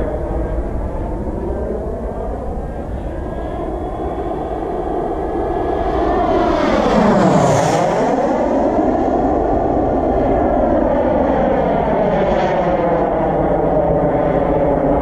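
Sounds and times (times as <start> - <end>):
jet passing whoosh: 0.0 - 10.3
model jet roar and whine: 0.0 - 15.0.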